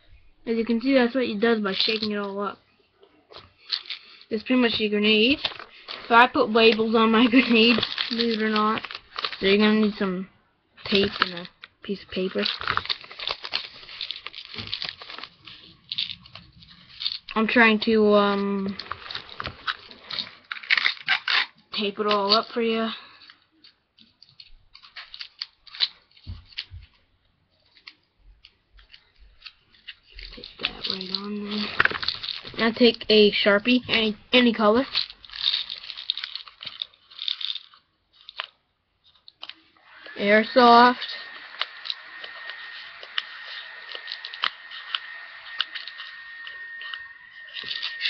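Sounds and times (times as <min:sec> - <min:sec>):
sticky tape crackling and ripping: 0:03.4 - 0:10.1, 0:10.8 - 0:17.6, 0:18.2 - 0:22.6, 0:24.1 - 0:26.9, 0:27.6 - 0:48.0
steady high whine: 0:39.8 - 0:48.0.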